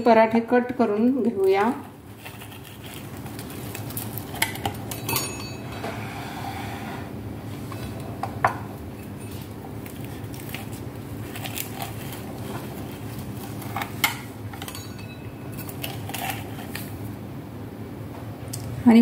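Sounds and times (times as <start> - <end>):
pizza cutter rolling through bread: 2.1 - 5.0, 9.0 - 14.8, 15.5 - 17.1.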